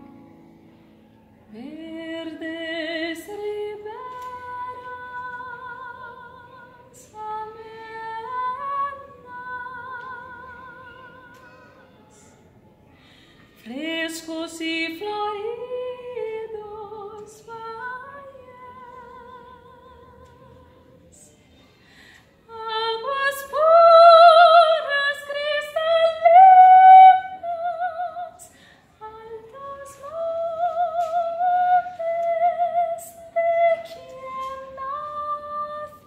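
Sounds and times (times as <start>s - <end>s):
nylon-string guitar: 0.0s - 11.4s
woman singing with vibrato: 1.5s - 11.4s, 13.6s - 21.3s, 22.5s - 36.0s.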